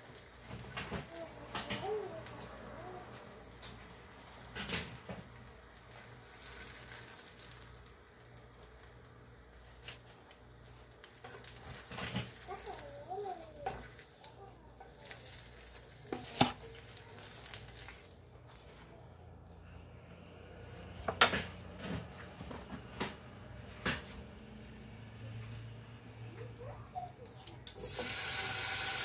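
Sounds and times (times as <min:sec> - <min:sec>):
oil sizzling: 0:00.0 - 0:18.6, 0:27.7 - 0:29.0
spatula scraping on pan: 0:14.8 - 0:18.0.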